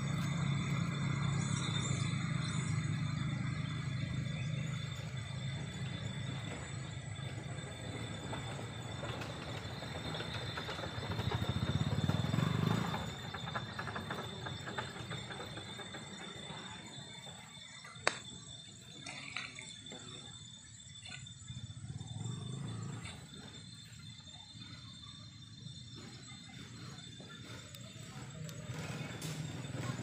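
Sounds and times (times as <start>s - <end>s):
distant motor rumbling: 0.0s - 30.0s.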